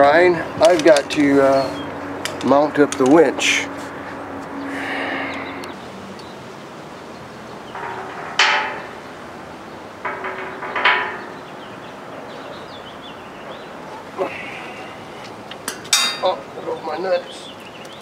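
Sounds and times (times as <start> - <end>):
metal clanks with ringing: 7.6 - 11.8, 15.7 - 16.4.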